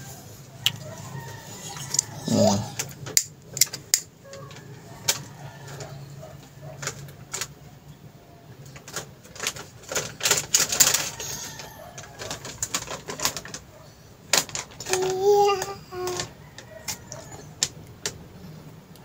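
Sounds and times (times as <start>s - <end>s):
metallic clicks and clatters: 2.8s - 7.6s, 8.6s - 18.4s.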